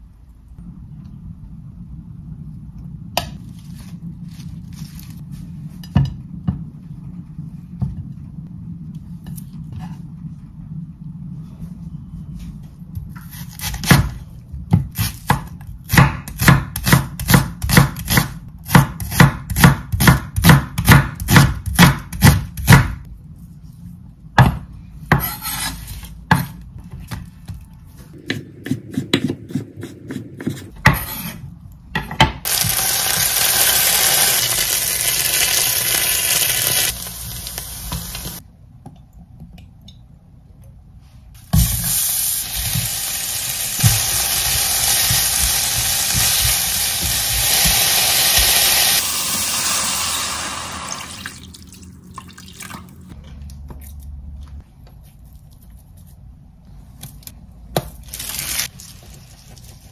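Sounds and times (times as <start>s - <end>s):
knife chopping on wooden board: 13.6s - 23.0s, 28.2s - 31.3s
food sizzling in a frying pan: 32.5s - 38.4s, 41.7s - 51.2s.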